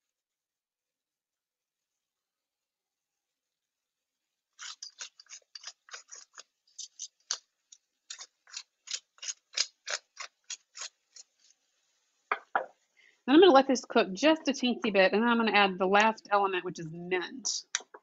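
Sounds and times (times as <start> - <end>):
pepper mill grinding: 4.6 - 11.6.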